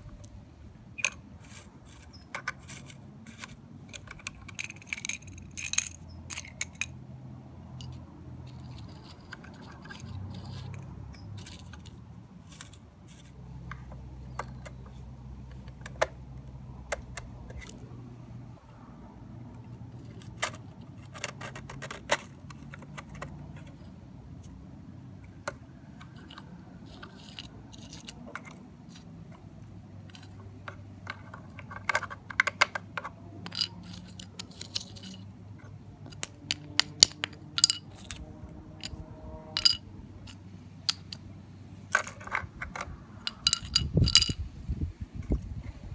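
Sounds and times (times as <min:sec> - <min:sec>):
low steady hum: 0:00.0 - 0:21.3, 0:33.0 - 0:45.9
toy truck clicks and clatters: 0:01.0 - 0:07.0, 0:07.8 - 0:16.2, 0:19.6 - 0:23.9, 0:25.2 - 0:39.0, 0:39.6 - 0:41.3, 0:41.9 - 0:44.4.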